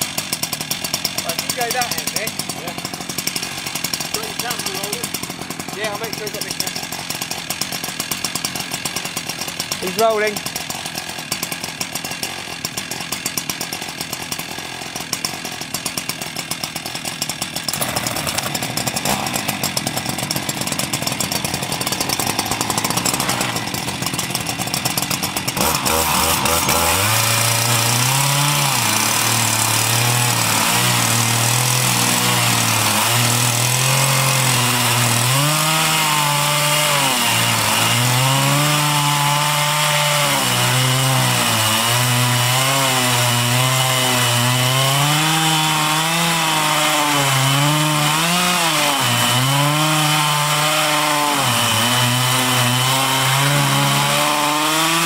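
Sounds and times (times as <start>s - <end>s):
chainsaws cutting a log: 0.0s - 55.0s.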